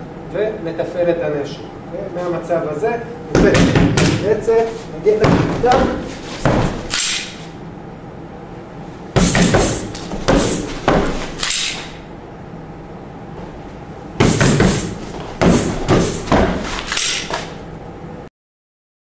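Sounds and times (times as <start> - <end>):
strikes on a striking pad: 3.3 - 4.3, 9.2 - 12.0, 14.2 - 17.5.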